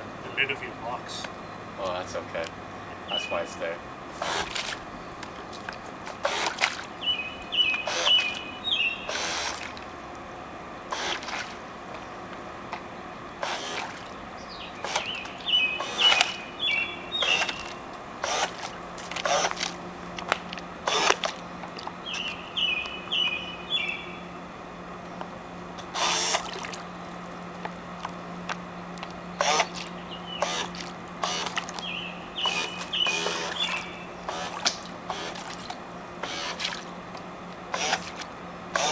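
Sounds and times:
propellers churning water: 0:00.0 - 0:23.7, 0:24.6 - 0:38.9
small electric motors whirring: 0:04.1 - 0:04.8, 0:06.1 - 0:06.7, 0:07.8 - 0:08.4, 0:09.0 - 0:09.7, 0:10.9 - 0:11.6, 0:13.4 - 0:14.0, 0:14.8 - 0:15.2, 0:15.8 - 0:16.4, 0:17.2 - 0:19.8, 0:20.8 - 0:21.4, 0:25.8 - 0:26.5, 0:29.0 - 0:31.8, 0:32.4 - 0:36.8, 0:37.7 - 0:38.9.

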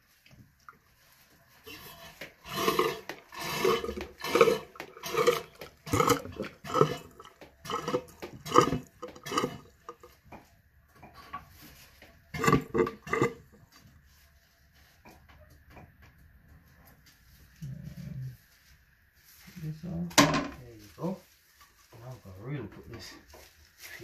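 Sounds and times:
hand pump slurping water: 0:01.8 - 0:10.1.

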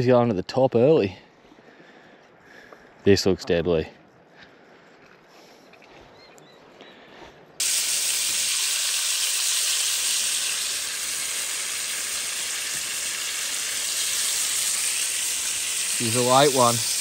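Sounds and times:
meat sizzling in a frying pan: 0:07.6 - 0:17.0.

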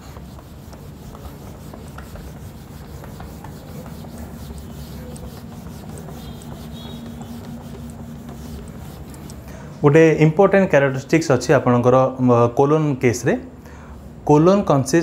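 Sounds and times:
cloth scrubbing whiteboard: 0:00.0 - 0:09.5.

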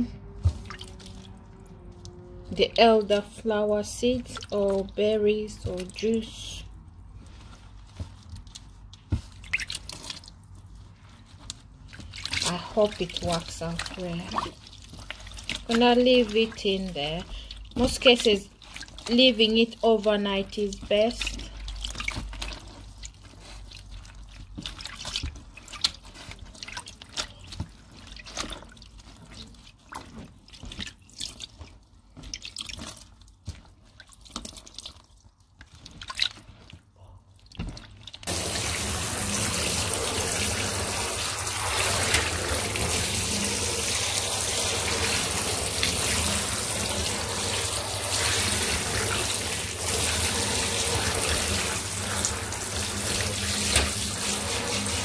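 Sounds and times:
wet fabric squelching: 0:00.0 - 0:55.0
tap running: 0:38.3 - 0:55.0.

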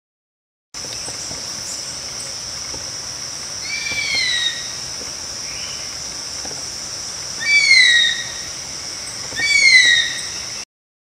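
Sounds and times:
high-pitched insect drone: 0:00.9 - 0:10.6
bird whistled call: 0:03.6 - 0:04.7, 0:07.4 - 0:10.6.

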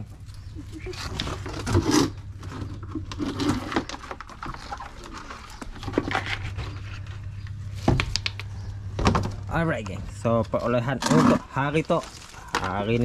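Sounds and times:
crabs clicking and tapping on concrete: 0:07.9 - 0:09.1.

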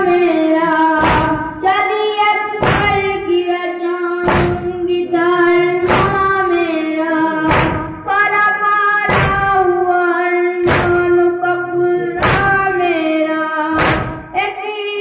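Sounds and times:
boy chanting into microphone: 0:00.0 - 0:15.0
chest-beating slaps: 0:01.0 - 0:01.6, 0:02.6 - 0:03.2, 0:04.2 - 0:04.8, 0:05.8 - 0:06.5, 0:07.4 - 0:08.0, 0:09.1 - 0:09.6, 0:10.6 - 0:11.2, 0:12.2 - 0:12.7, 0:13.8 - 0:14.4.

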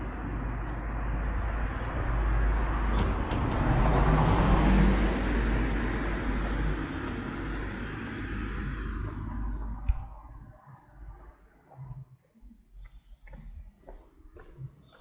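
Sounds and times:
car driving past: 0:00.0 - 0:10.8.

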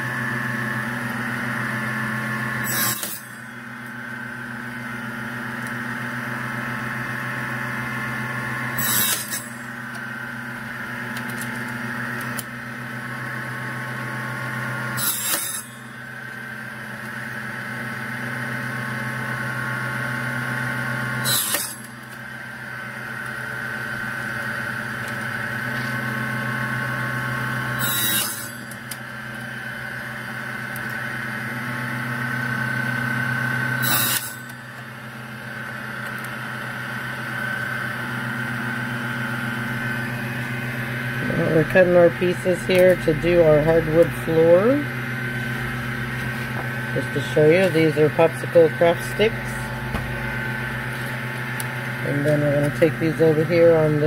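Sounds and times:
table saw motor hum: 0:00.0 - 0:54.0
saw cutting wooden sticks: 0:02.5 - 0:04.0, 0:08.7 - 0:10.1, 0:14.8 - 0:17.3, 0:21.2 - 0:22.2, 0:27.6 - 0:29.6, 0:33.7 - 0:36.4, 0:41.1 - 0:54.0.

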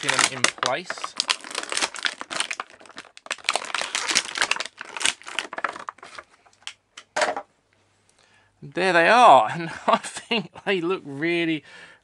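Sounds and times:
plastic packaging crinkling: 0:00.0 - 0:06.8.

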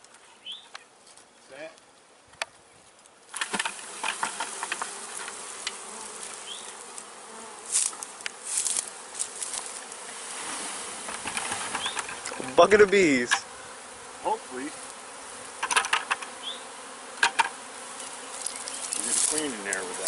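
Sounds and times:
bee swarm buzzing: 0:03.3 - 0:20.0
knocks and rustles: 0:11.0 - 0:13.4.

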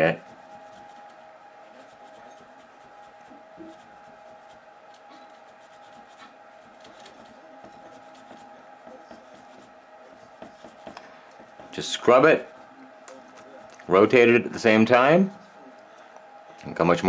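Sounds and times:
faint steady hum: 0:00.0 - 0:17.0
paper towel scrubbing rubber roller: 0:05.4 - 0:12.7.

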